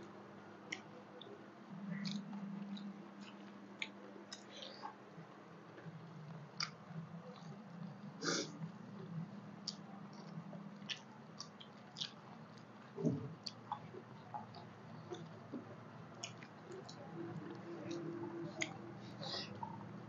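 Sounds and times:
low steady hum: 0.0 - 20.0
mouth smacks and chewing: 1.9 - 4.9, 9.6 - 15.4, 16.1 - 18.8.

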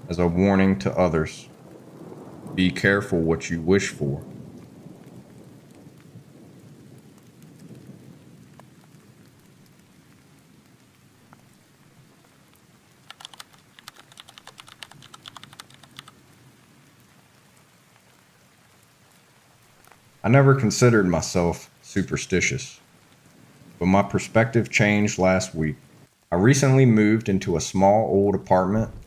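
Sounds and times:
thunder rumble: 0.0 - 12.1, 28.4 - 29.0
faint steady rain: 0.0 - 29.0
rapid light clicking: 13.1 - 16.1.

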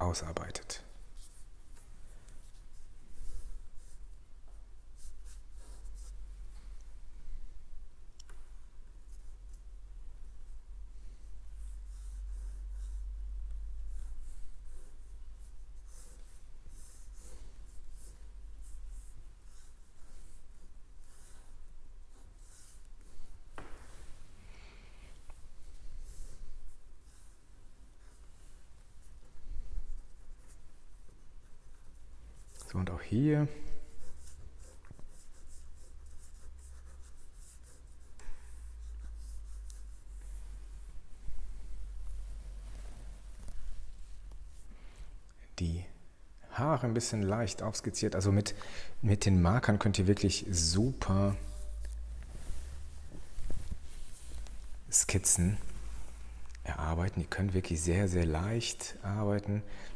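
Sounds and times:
steady low hum: 0.8 - 59.7
marker scratching on paper: 1.0 - 6.2, 11.5 - 24.0, 25.4 - 33.0, 33.7 - 42.2.

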